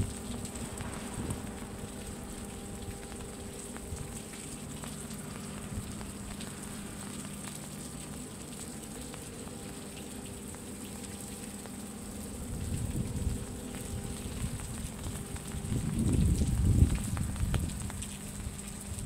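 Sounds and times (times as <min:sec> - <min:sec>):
light rain pattering: 0:00.0 - 0:19.0
low hum: 0:00.0 - 0:19.0.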